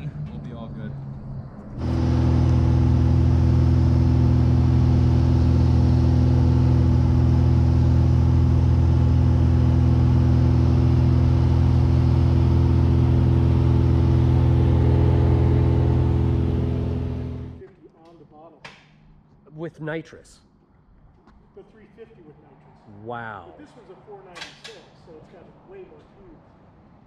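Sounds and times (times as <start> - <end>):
aircraft engine and propeller: 0.0 - 17.6.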